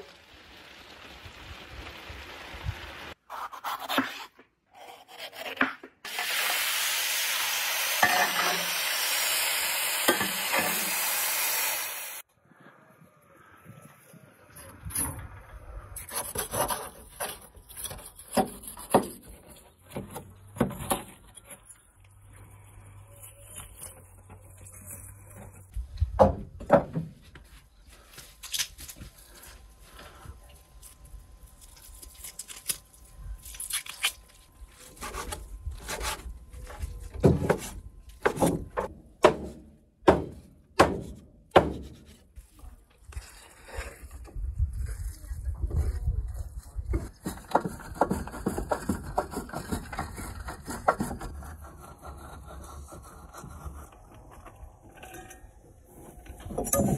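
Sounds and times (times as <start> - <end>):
rubbing and scraping: 16.0 - 25.8, 41.8 - 56.9.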